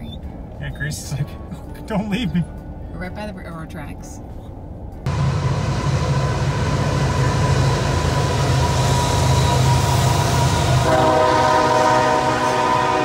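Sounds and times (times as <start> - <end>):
locomotive engine drone: 0.0 - 13.0
train rail noise on bridge: 4.8 - 13.0
multi-tone air horn: 10.6 - 13.0.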